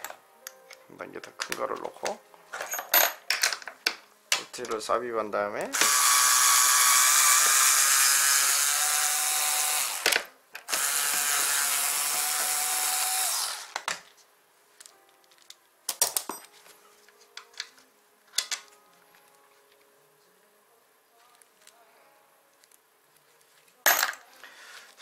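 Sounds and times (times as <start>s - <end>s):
electric drill-driver running: 5.7s - 13.9s.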